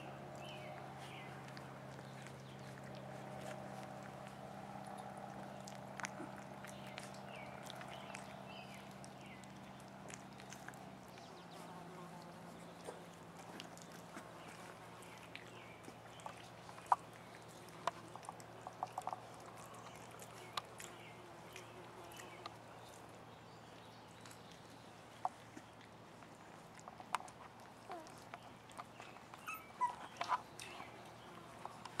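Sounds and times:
puppies eating from steel pan: 0.0 - 32.0
faint squeaks: 29.0 - 32.0.

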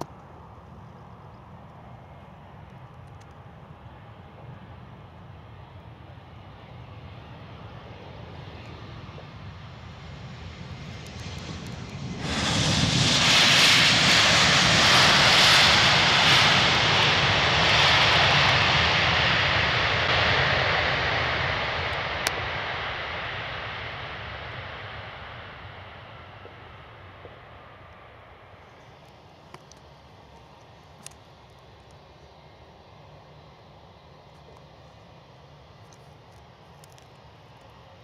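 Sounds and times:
jet engine noise: 0.0 - 38.0
loud rush of jet noise: 6.0 - 28.6.

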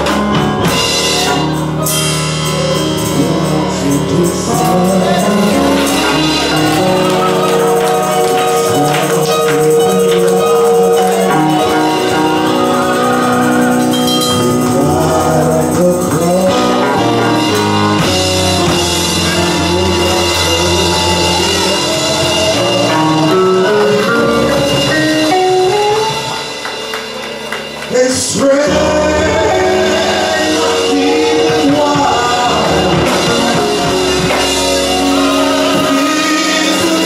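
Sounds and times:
gospel band playing chords: 0.0 - 37.0
choir singing: 3.1 - 23.8, 27.9 - 37.0.

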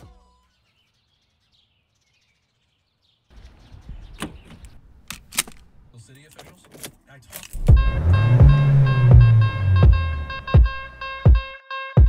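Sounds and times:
outdoor air noise: 3.3 - 10.4.

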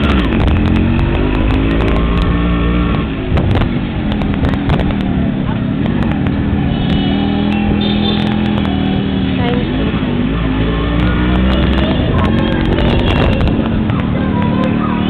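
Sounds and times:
motorcycle running: 0.0 - 15.0
road noise: 0.0 - 15.0
voices: 7.2 - 15.0.

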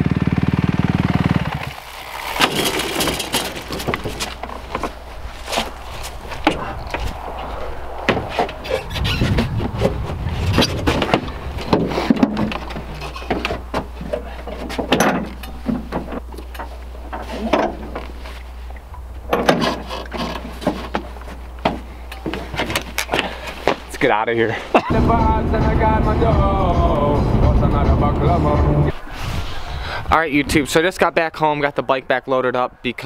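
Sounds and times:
metal clanks and scrapes: 8.2 - 18.1, 19.3 - 21.3.

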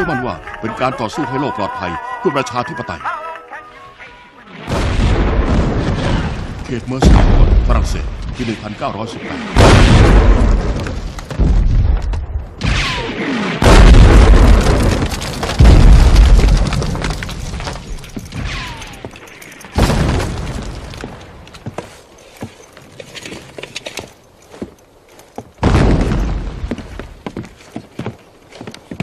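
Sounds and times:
artillery shells exploding: 4.6 - 18.7.

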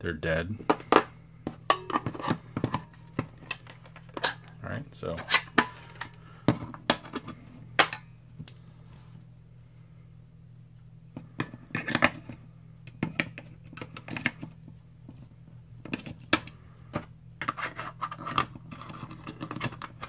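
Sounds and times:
low steady hum: 0.0 - 20.0
plastic clicks and scrapes: 17.4 - 20.0.

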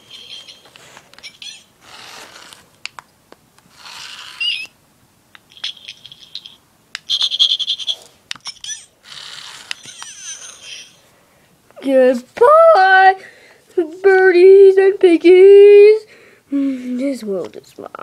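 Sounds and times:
small animal chirping: 0.0 - 2.5, 3.8 - 4.8, 5.4 - 11.0
paper pages rustling: 1.9 - 2.8.

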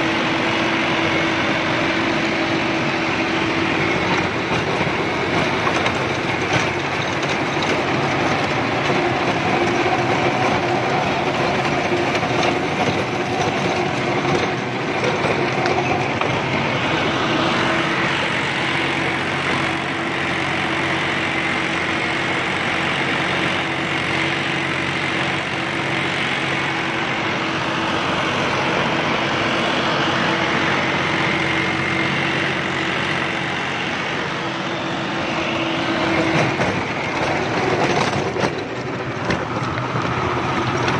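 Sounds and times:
tractor diesel engine drone: 0.0 - 40.9
rotavator mechanical clatter: 3.4 - 28.7, 35.2 - 40.9.

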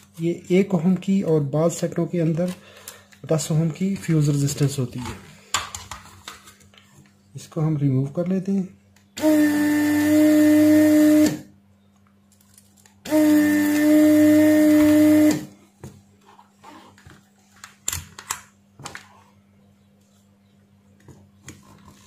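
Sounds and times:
desoldering vacuum pump humming: 7.4 - 12.2, 13.0 - 22.0.

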